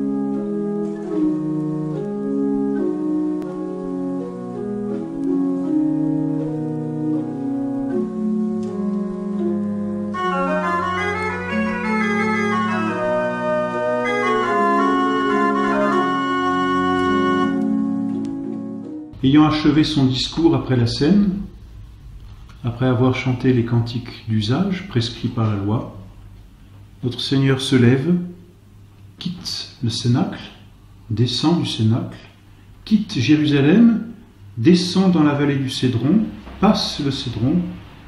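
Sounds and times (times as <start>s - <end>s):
organ music: 0.0s - 29.2s.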